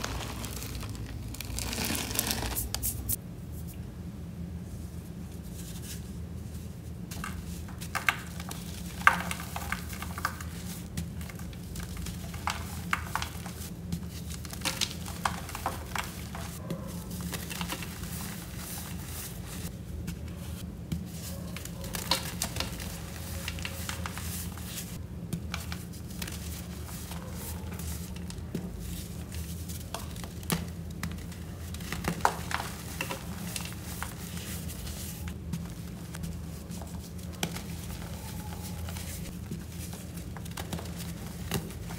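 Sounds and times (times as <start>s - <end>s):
sand crumbling and trickling: 0.0s - 2.8s
sand block cracking and crunching: 0.0s - 3.1s.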